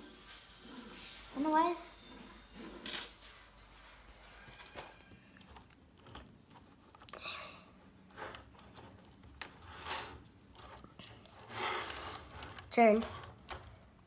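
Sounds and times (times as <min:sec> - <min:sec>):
plastic parts clicking: 0:05.4 - 0:07.2
plastic rubbing scrapes: 0:08.0 - 0:13.7.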